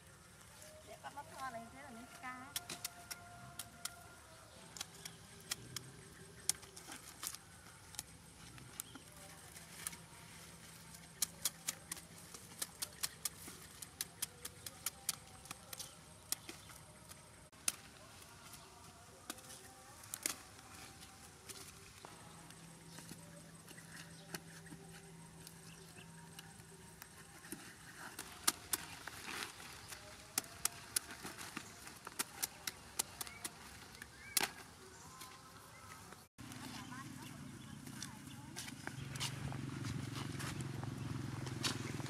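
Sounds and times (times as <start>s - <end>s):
cauliflower leaves snapping: 2.3s - 10.0s, 10.7s - 22.1s, 26.3s - 35.3s.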